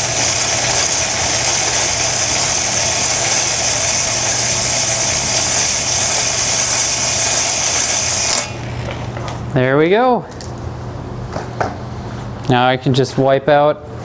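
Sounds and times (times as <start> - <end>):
electric drill honing cylinder: 0.0 - 9.0.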